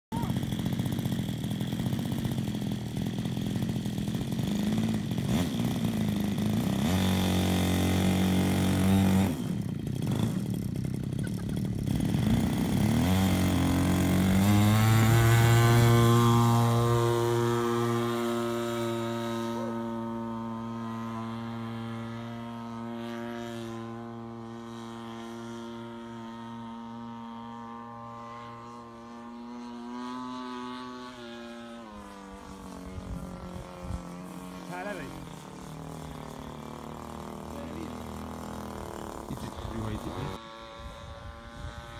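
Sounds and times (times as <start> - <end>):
model airplane engine: 0.1 - 41.9.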